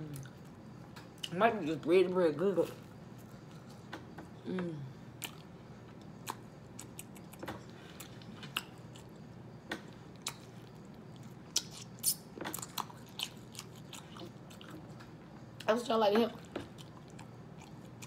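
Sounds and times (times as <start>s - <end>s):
wet mouth clicks chewing: 10.2s - 14.8s.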